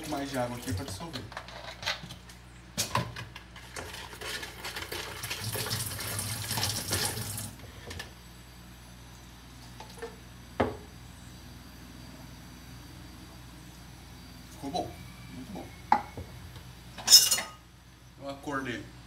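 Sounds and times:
water pouring into plastic pitcher: 4.1s - 7.6s.

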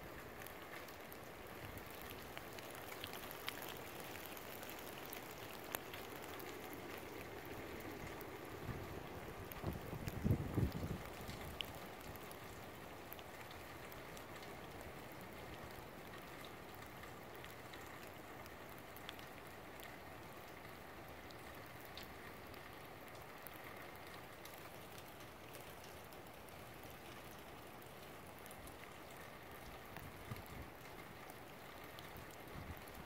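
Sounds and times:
steady rain: 0.0s - 33.0s.

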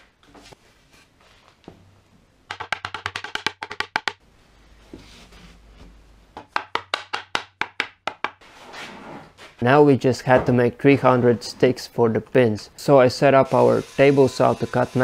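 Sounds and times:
sharp wooden knocks: 2.5s - 4.2s, 6.4s - 8.4s.

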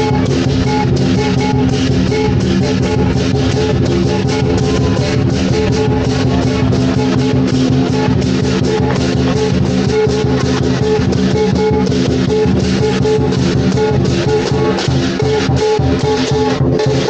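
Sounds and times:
guitar music with drum beat: 0.0s - 17.0s.

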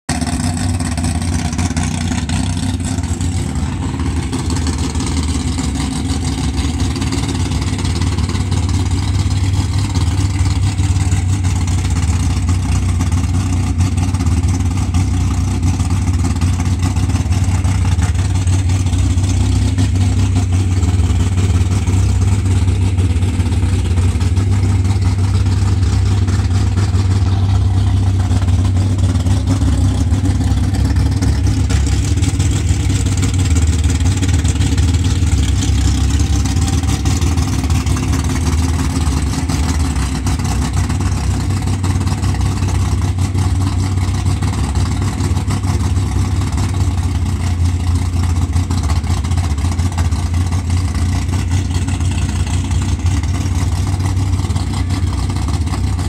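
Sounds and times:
car engine idling: 0.1s - 56.0s.

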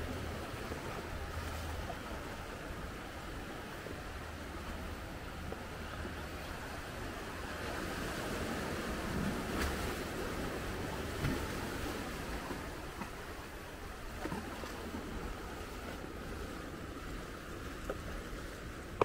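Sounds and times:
small waves washing over rock: 7.2s - 19.0s.

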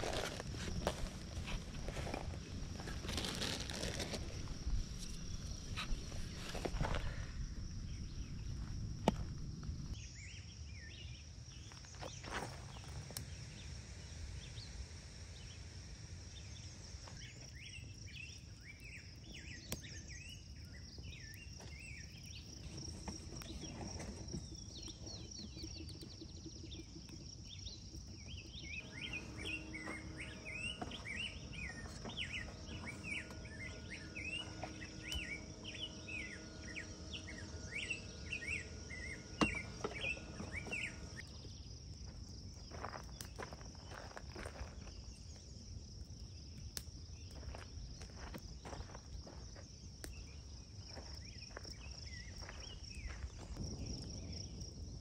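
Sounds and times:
small birds chirping: 16.4s - 41.8s, 42.5s - 54.9s
high insect buzz: 26.1s - 41.3s.

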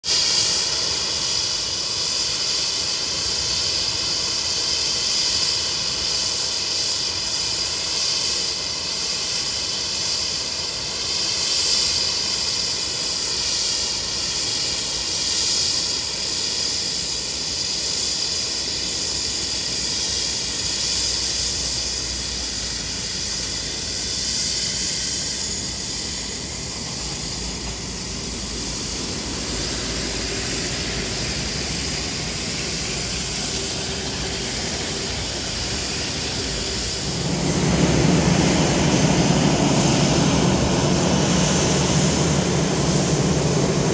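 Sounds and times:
jet engines whining: 0.0s - 43.9s
low rumble: 25.2s - 43.9s.

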